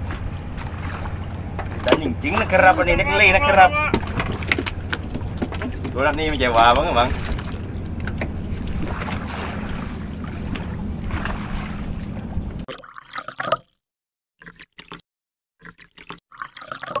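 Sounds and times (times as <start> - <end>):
boat engine rumble: 0.0 - 12.7
water splashing: 0.0 - 13.8, 14.4 - 15.0, 15.6 - 17.0.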